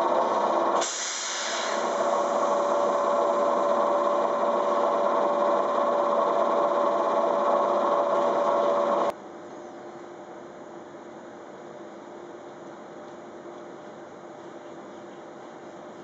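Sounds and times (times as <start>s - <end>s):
motor-generator and blowers whining: 0.0s - 9.2s
steady hum: 0.0s - 9.7s.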